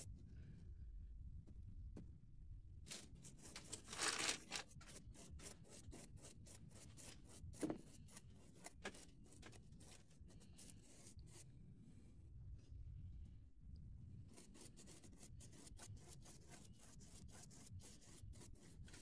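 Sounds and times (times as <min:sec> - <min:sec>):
paintbrush scrubbing on card: 0:02.9 - 0:12.0, 0:14.2 - 0:19.0.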